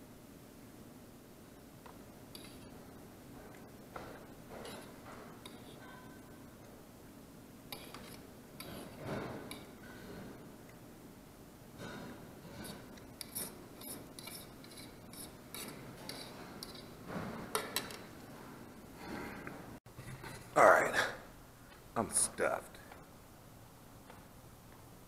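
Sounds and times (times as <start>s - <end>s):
utensil scraping a plate: 7.7s - 10.4s, 11.8s - 17.3s.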